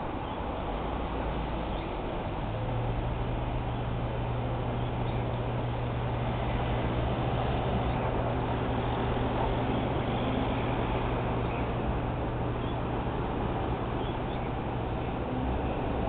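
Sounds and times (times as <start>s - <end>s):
traffic noise: 0.0s - 16.0s.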